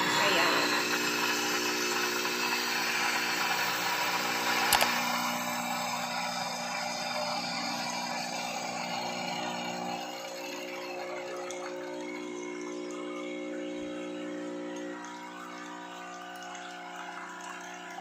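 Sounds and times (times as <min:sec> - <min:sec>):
espresso machine pump buzzing: 0:00.0 - 0:18.0
hot water running into mug: 0:00.0 - 0:18.0
sharp click: 0:04.7 - 0:05.0.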